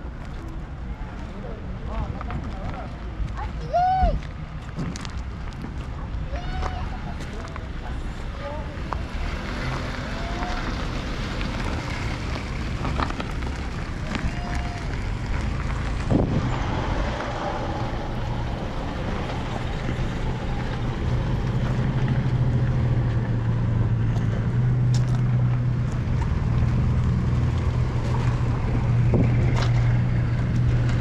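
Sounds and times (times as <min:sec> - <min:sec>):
wind noise on microphone: 0:13.4 - 0:21.5, 0:27.9 - 0:31.0.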